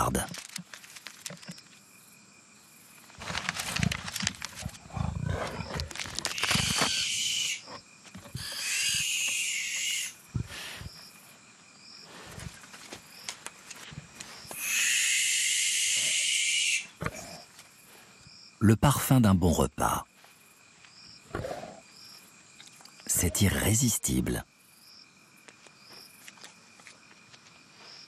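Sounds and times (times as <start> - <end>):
young animals hissing screeches: 6.3 - 7.7, 8.4 - 11.0, 14.6 - 16.9.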